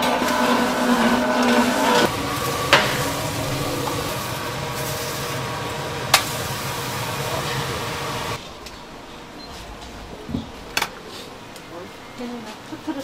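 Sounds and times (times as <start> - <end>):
steam hissing from steamer: 0.0 - 8.5.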